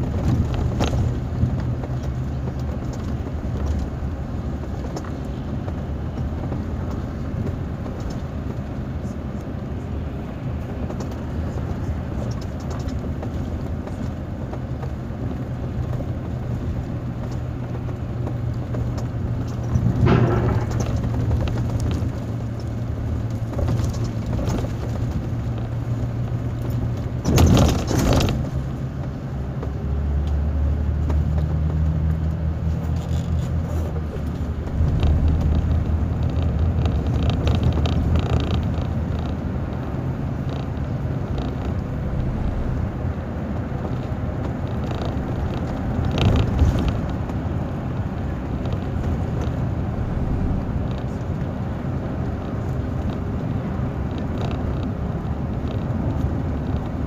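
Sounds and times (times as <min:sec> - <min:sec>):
diesel engine running: 0:00.0 - 0:57.0
tyre and road noise: 0:00.0 - 0:57.0
loud rattle: 0:19.5 - 0:22.4.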